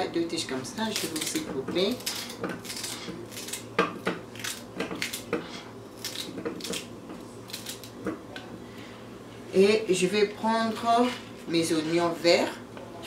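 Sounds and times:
knife cutting celery: 0.9s - 3.7s.

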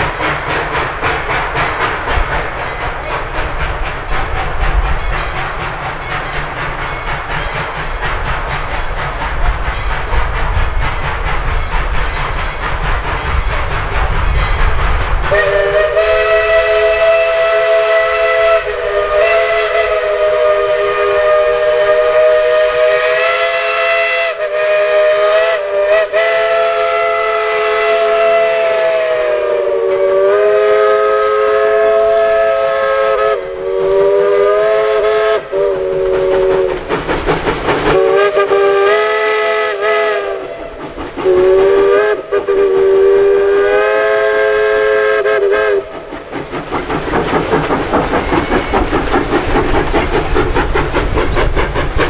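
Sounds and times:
locomotive exhaust beats: 0.0s - 52.0s
steam locomotive chime whistle: 4.7s - 7.9s, 11.3s - 36.8s, 37.9s - 45.9s.

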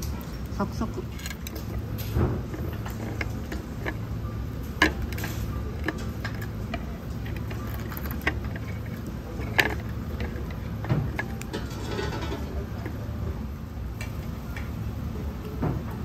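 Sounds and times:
steady low hum: 0.0s - 16.0s
tableware clicking and tapping: 1.1s - 13.4s.

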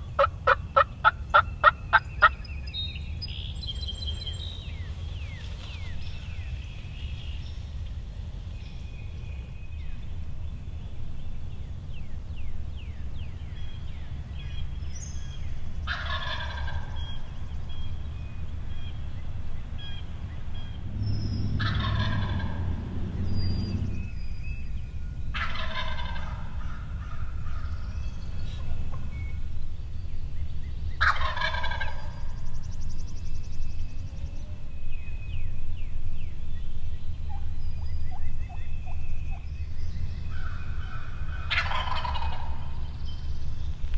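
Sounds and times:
small birds chirping: 0.0s - 43.9s
turkey gobbling: 0.2s - 2.3s, 15.8s - 17.0s, 21.6s - 22.7s, 25.3s - 26.8s, 31.0s - 32.2s, 40.8s - 42.8s
low rumble: 2.5s - 43.9s.

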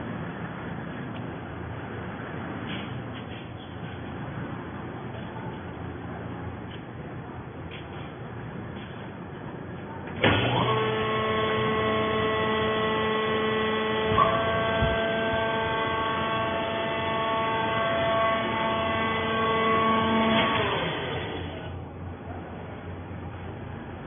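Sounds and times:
hydraulic power unit whining: 10.1s - 22.2s.

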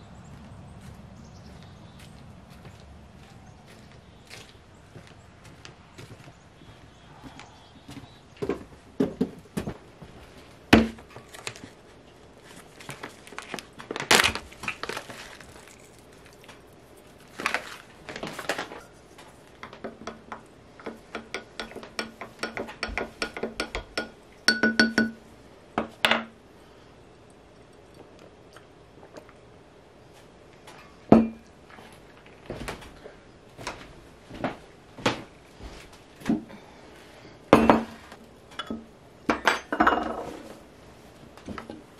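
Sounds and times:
foil packet crinkling: 12.4s - 19.6s
spoon clinking in glass jar: 23.6s - 25.2s.

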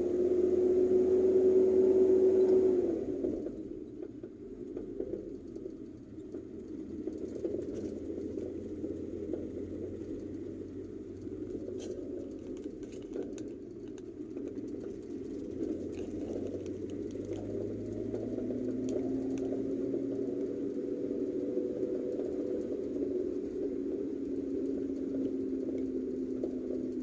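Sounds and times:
car engine and tyre rumble: 0.0s - 27.0s
small rattles and clicks: 3.2s - 27.0s
steady hum: 6.6s - 27.0s.

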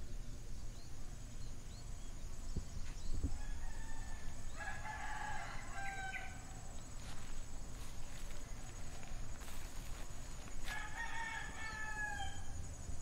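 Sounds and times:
rooster crowing: 3.4s - 6.7s, 8.7s - 12.7s.

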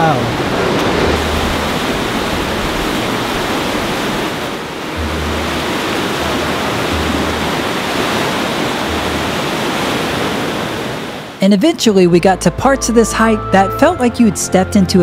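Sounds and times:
creek rushing over rocks: 0.0s - 11.4s.

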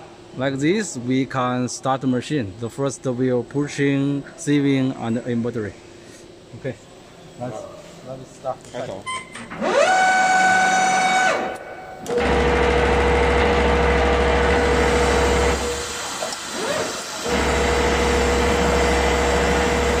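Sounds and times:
motor whine: 9.5s - 20.0s
machine running with low hum: 9.6s - 20.0s.

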